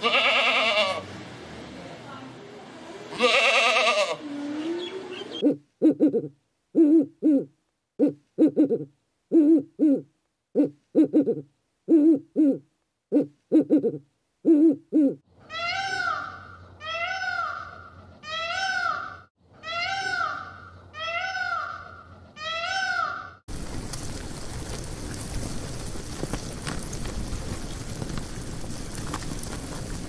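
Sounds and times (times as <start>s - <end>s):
peacock calling: 3.2s - 10.0s, 10.6s - 23.4s
owl hooting: 4.6s - 23.4s.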